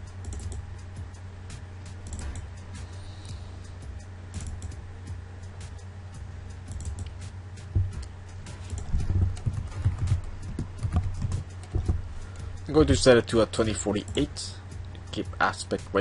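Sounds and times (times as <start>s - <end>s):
steady low hum: 0.0s - 16.0s
soft low thumps: 7.6s - 13.0s.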